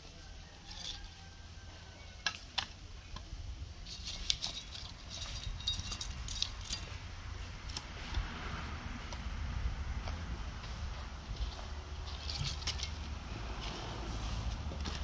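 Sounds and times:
firewood sticks clacking: 2.2s - 7.0s, 11.4s - 13.9s
steady low rumble: 5.0s - 15.0s.

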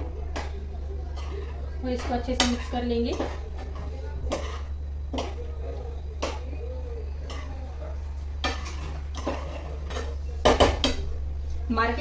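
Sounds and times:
low hum: 0.0s - 12.0s
spoon scraping frying pan: 1.1s - 5.5s, 7.2s - 10.2s.

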